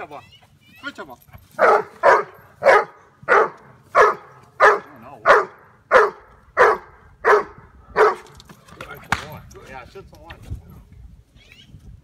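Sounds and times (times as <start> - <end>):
dog barking: 1.6 - 8.3.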